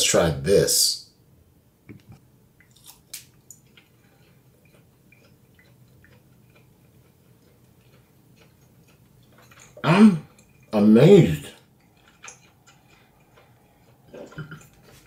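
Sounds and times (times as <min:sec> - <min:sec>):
person chewing: 0:02.6 - 0:10.8, 0:11.5 - 0:15.0.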